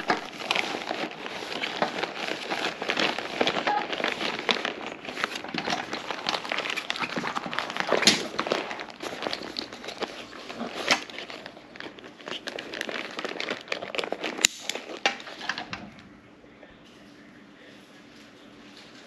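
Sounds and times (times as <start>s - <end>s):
dry bag crinkling and rustling: 0.0s - 16.0s
sharp clicks and crackles: 0.0s - 16.0s.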